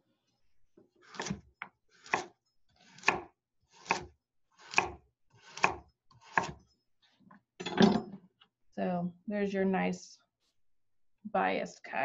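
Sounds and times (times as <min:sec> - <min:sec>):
knife slicing carrot: 0:01.0 - 0:06.6.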